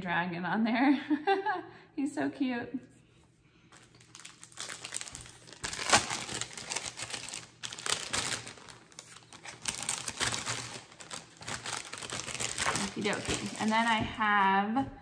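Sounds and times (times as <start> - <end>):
fabric crinkling and rustling: 3.7 - 14.4.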